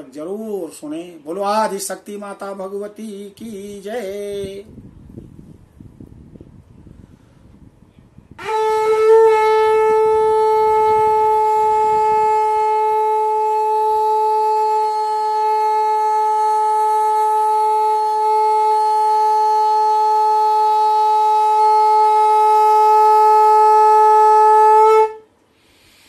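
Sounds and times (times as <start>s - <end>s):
conch shell blown: 8.4s - 25.4s.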